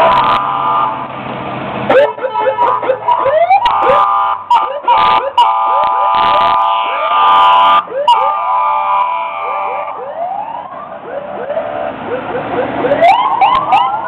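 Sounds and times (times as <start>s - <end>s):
air horn blasts: 0.0s - 1.1s, 1.9s - 10.0s
fire engine sirens yelping: 0.0s - 1.2s, 1.8s - 14.0s.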